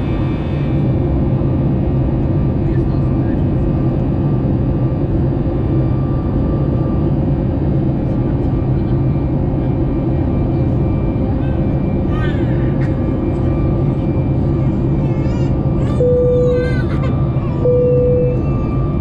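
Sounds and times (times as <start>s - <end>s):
airplane cabin engine rumble: 0.0s - 19.0s.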